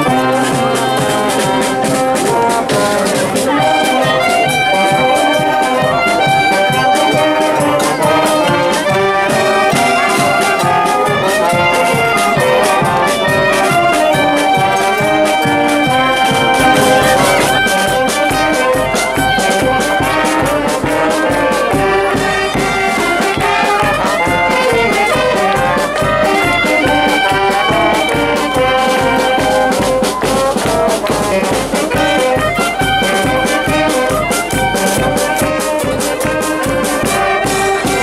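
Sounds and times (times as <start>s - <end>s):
brass band playing: 0.0s - 38.0s
bass drum beat: 16.3s - 18.3s.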